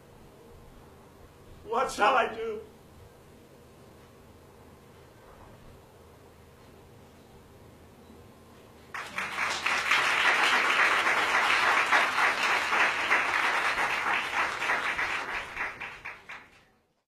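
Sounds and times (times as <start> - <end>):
audience applauding: 8.9 - 16.7.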